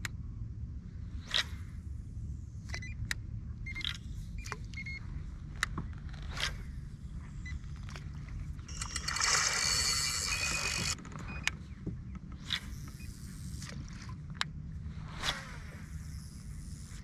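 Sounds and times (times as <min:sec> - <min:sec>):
low steady rumble: 0:00.0 - 0:17.0
light reel clicks: 0:07.8 - 0:14.6
reel whirring as line pays out: 0:08.6 - 0:11.4.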